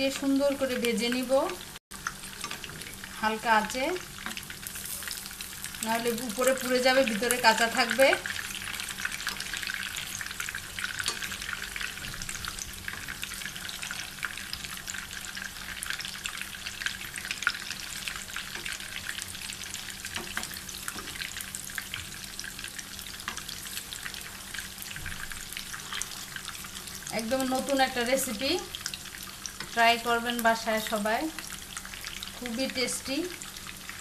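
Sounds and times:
meat sizzling in oil: 0.0s - 34.0s.

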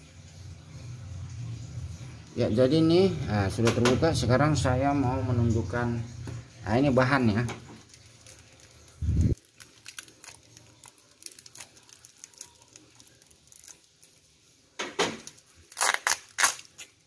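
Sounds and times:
packing tape crinkling: 7.7s - 14.4s, 15.1s - 17.0s
tape ripping: 7.8s - 14.2s, 15.1s - 17.0s.

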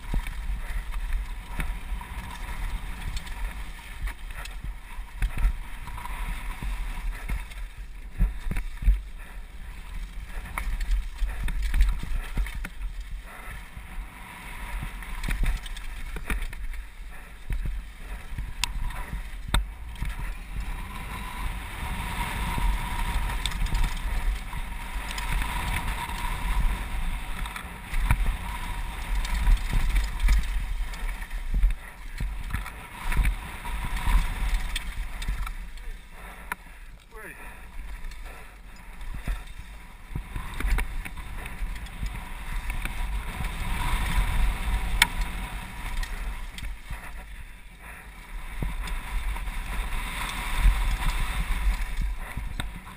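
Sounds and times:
bike knocking and rattling: 0.0s - 52.9s
wind buffeting microphone: 37.6s - 52.9s.

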